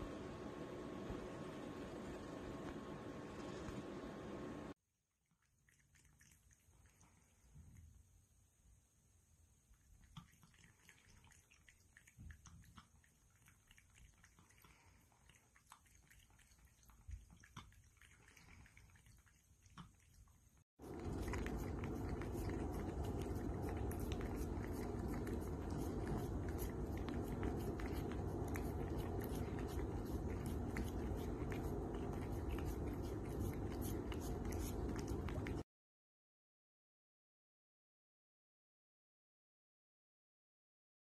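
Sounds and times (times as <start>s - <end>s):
cat lapping water: 5.3s - 8.0s, 9.7s - 35.6s
cat licking and smacking: 5.3s - 8.0s, 9.7s - 35.6s.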